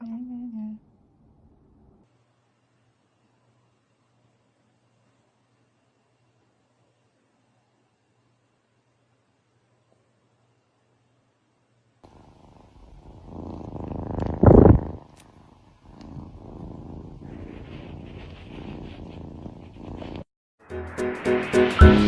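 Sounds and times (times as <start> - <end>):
cat purring: 12.0 - 20.3.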